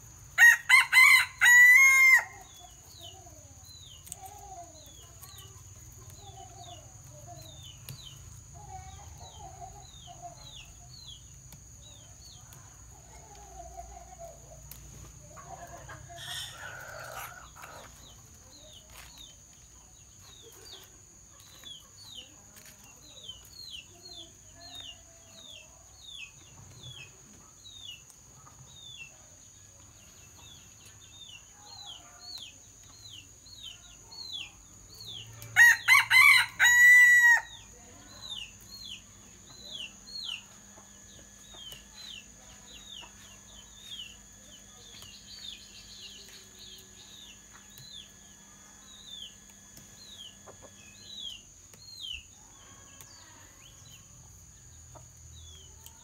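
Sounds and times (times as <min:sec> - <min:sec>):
rooster crowing: 0:00.4 - 0:02.5, 0:35.6 - 0:37.7
small bird chirping: 0:37.6 - 0:56.0
chicken clucking: 0:50.2 - 0:51.4.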